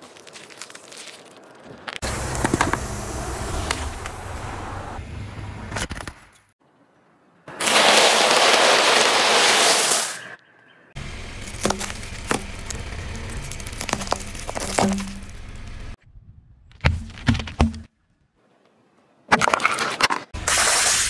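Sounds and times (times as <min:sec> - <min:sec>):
tyre crunching snacks: 0:00.0 - 0:02.8, 0:11.2 - 0:15.7.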